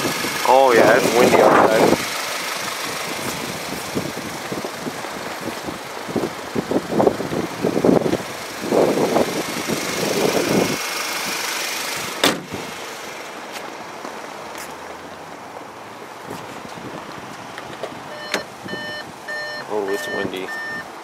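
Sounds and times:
wind buffeting microphone: 0.0 - 11.4, 16.2 - 19.3
car hood slamming shut: 12.2 - 12.6.

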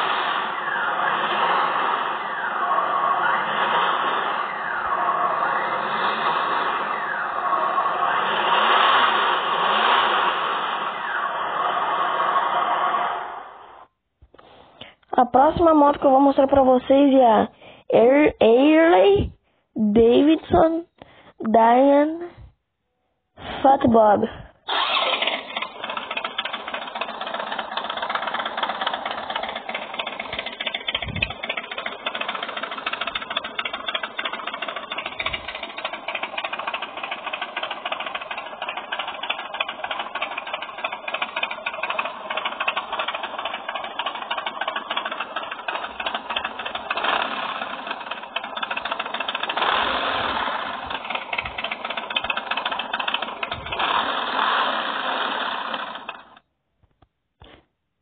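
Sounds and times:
motorcycle engine pulsing: 0.0 - 12.7, 24.7 - 56.4.

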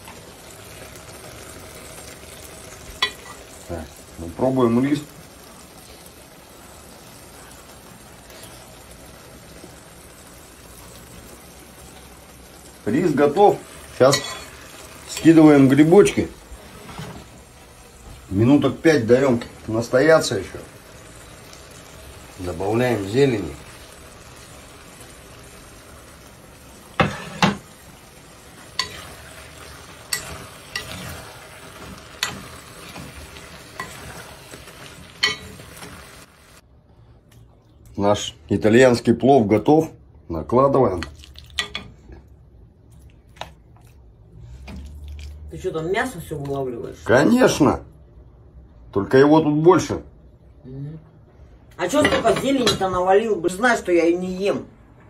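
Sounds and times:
pot simmering with faint sizzle: 0.0 - 38.0, 40.1 - 48.9
spoon scraping metal pot: 30.1 - 33.1.

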